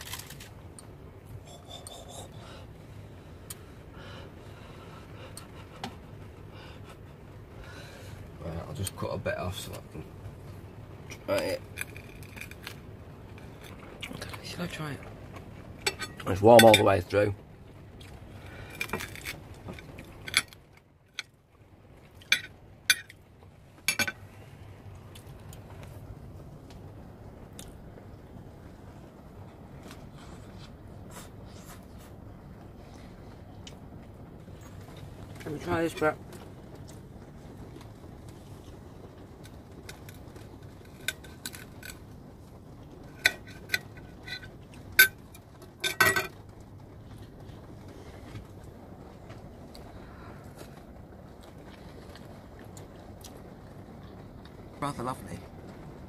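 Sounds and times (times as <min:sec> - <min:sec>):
low steady hum: 0:00.0 - 0:56.0
cutlery clinking on plate: 0:45.8 - 0:46.4.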